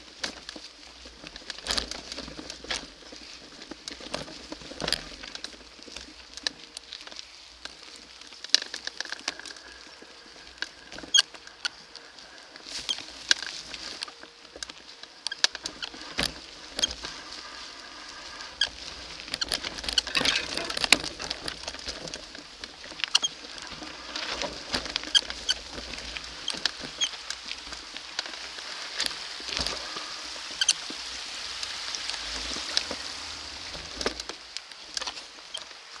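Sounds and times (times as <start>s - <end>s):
bike tyres hissing over leaves: 0.0s - 36.0s
bike clacking and rattling: 12.3s - 30.7s.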